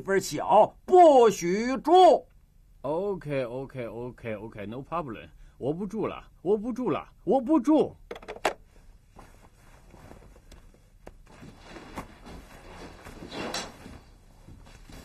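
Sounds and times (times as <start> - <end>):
fabric rustling: 8.6 - 15.0
soft footsteps: 8.6 - 15.0
fabric swish: 11.2 - 15.0.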